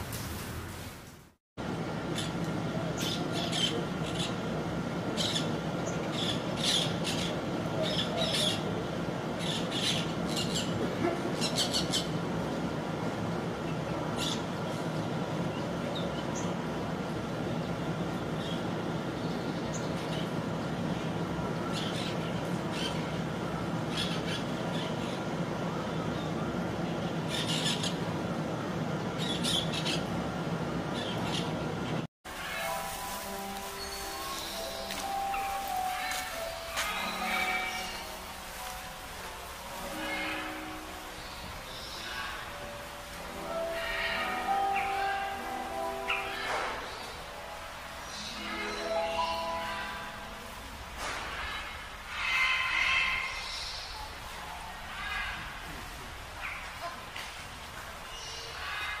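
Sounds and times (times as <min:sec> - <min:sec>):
low background hum: 0:00.0 - 0:59.0
low background rush: 0:00.0 - 0:59.0
parakeets screeching: 0:33.8 - 0:38.1, 0:43.5 - 0:45.4, 0:46.0 - 0:47.1, 0:51.3 - 0:53.9, 0:54.9 - 0:55.5, 0:58.1 - 0:59.0.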